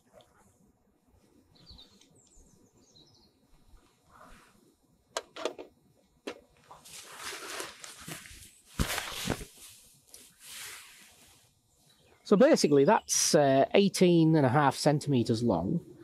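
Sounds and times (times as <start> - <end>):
faint bird chirps: 1.4 - 4.4
plastic packaging rustling: 6.7 - 9.6.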